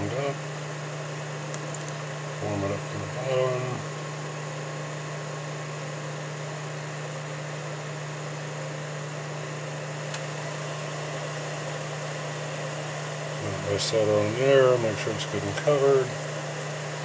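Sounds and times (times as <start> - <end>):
low electrical hum: 0.0 - 17.0
faint click: 10.1 - 10.3.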